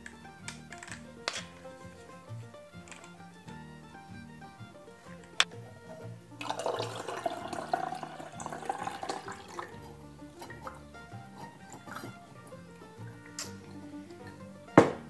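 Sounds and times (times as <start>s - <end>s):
soft background music: 0.0s - 15.0s
liquid pouring into a jar: 6.4s - 10.8s
sharp knock: 14.8s - 15.0s.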